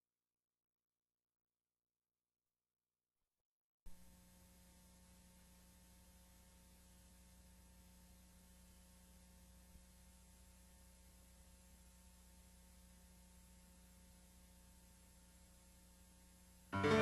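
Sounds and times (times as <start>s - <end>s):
faint mains hum with hiss: 3.9s - 17.0s.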